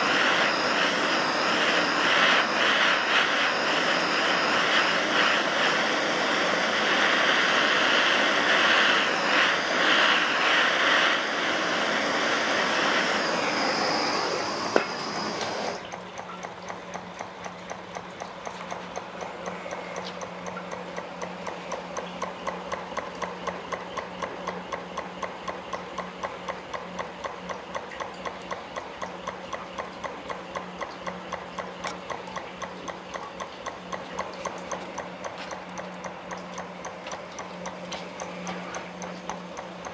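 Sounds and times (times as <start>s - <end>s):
gas torch hissing: 0.0s - 15.8s
stirling engine clicking: 0.0s - 39.9s.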